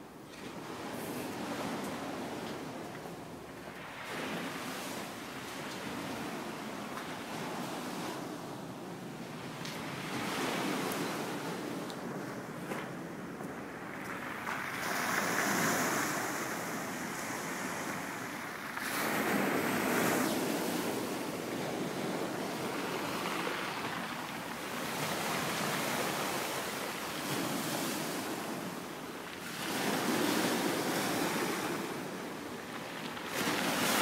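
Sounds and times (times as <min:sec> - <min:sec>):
waves breaking on pebble beach: 0:00.4 - 0:08.6, 0:09.4 - 0:34.0.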